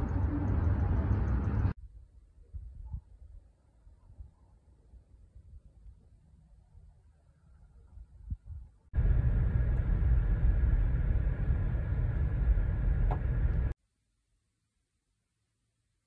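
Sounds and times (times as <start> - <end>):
car driving on dirt road: 0.0 - 1.8, 9.0 - 13.8.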